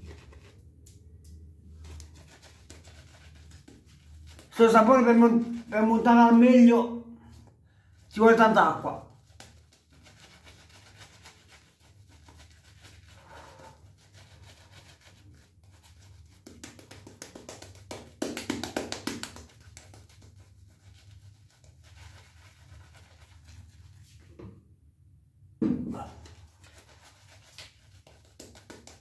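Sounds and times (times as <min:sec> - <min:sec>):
shaving brush scratching lather: 0:00.0 - 0:00.6, 0:01.8 - 0:06.6, 0:08.4 - 0:17.8, 0:19.4 - 0:24.1, 0:26.2 - 0:29.0.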